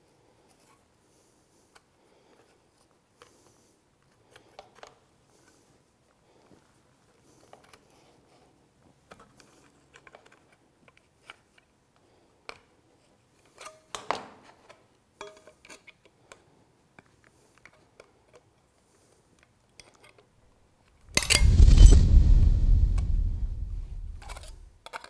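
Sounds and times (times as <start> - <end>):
loud thump with deep rumble: 21.1 - 24.7.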